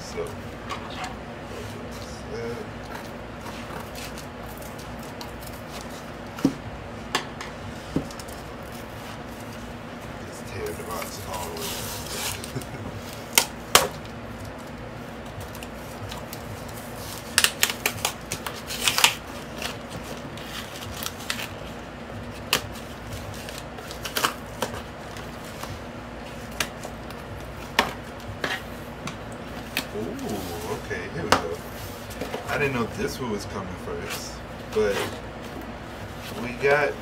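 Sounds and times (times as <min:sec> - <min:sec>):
fan hum: 0:00.0 - 0:37.0
cardboard tearing and crackling: 0:02.9 - 0:06.4, 0:10.6 - 0:28.7.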